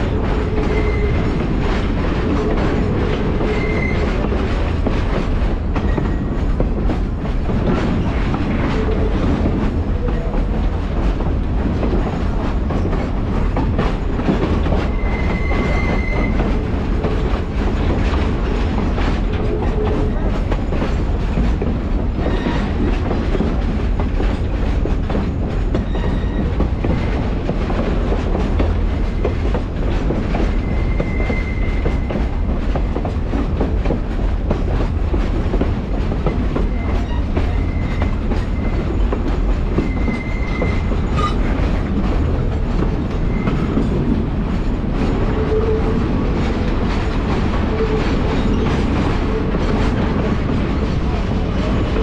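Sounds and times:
train wheels rumbling on track: 0.0s - 52.0s
high wheel squeal: 3.4s - 4.2s, 14.9s - 16.5s, 30.6s - 32.0s, 39.8s - 41.5s.

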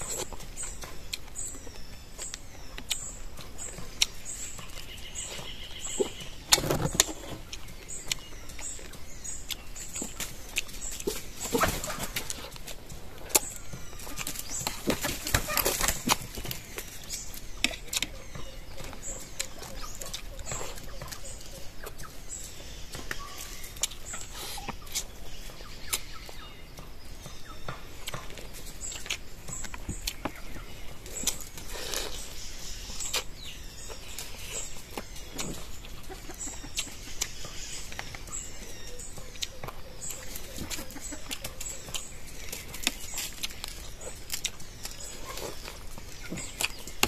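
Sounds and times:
chewing and lip-smacking: 0.0s - 11.3s, 15.5s - 26.4s, 28.0s - 47.0s.

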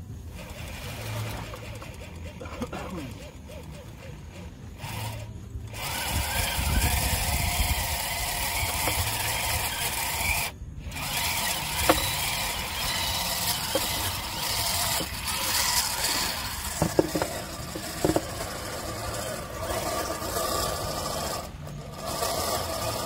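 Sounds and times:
fishing reel drag buzzing: 0.2s - 23.0s.

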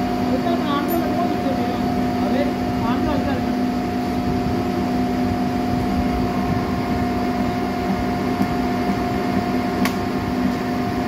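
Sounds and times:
steady machine hum: 0.0s - 11.0s
sharp click: 9.8s - 10.0s.

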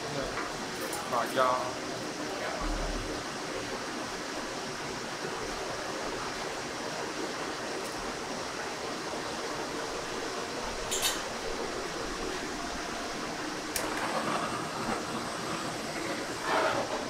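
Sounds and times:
kitchen background rushing noise: 0.0s - 17.0s.

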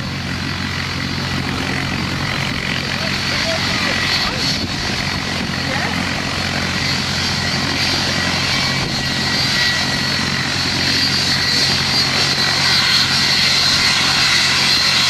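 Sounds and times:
jet engines whining: 0.0s - 15.0s.

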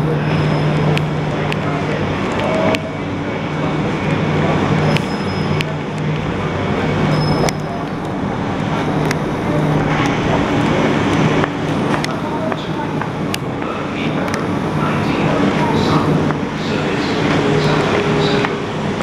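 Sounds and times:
electric train low hum: 0.0s - 19.0s.

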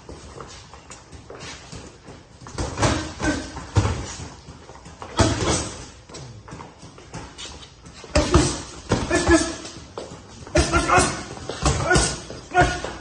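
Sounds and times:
boxing gloves smacking pads: 5.0s - 6.0s.

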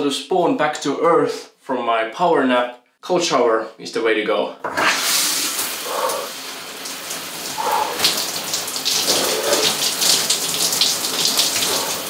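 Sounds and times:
shower water splashing: 4.7s - 12.0s.

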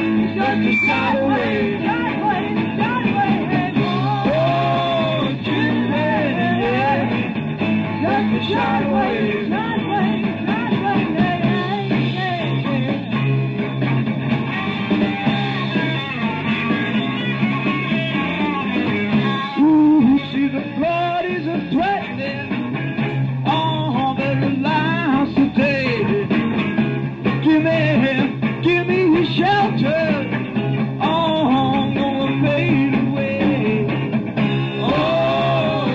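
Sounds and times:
lead singer singing: 0.0s - 13.1s, 19.2s - 22.5s, 23.4s - 26.4s, 27.4s - 30.4s, 31.0s - 34.1s, 34.8s - 35.9s
rock band playing: 0.0s - 35.9s.

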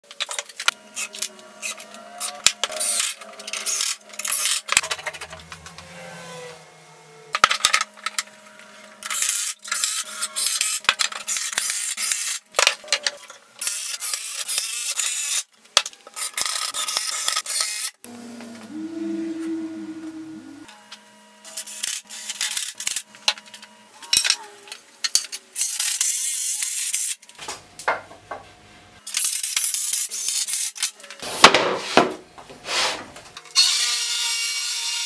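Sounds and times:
power tool running: 0.6s - 12.5s, 17.0s - 23.8s.

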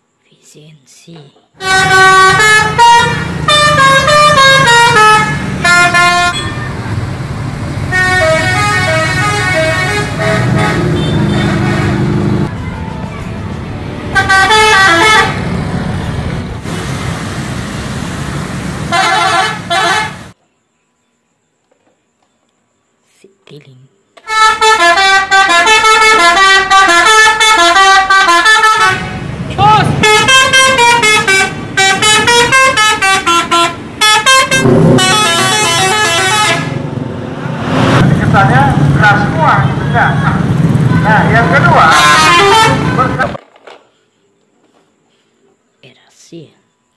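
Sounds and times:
road noise: 0.0s - 20.4s, 23.0s - 45.7s
traffic rumble: 0.2s - 20.4s, 24.6s - 44.1s
multi-tone bus horn: 1.6s - 7.0s, 7.8s - 13.1s, 13.9s - 16.5s, 18.9s - 20.4s, 24.2s - 37.0s, 39.2s - 43.4s
bus engine: 1.6s - 20.4s, 24.4s - 43.4s.

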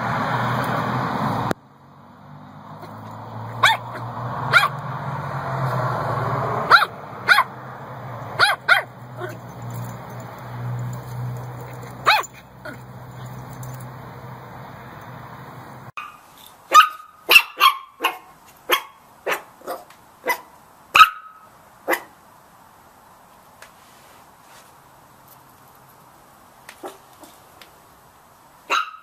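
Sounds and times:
puppies barking: 2.8s - 4.9s, 6.4s - 13.9s, 16.0s - 22.1s, 28.7s - 29.0s.

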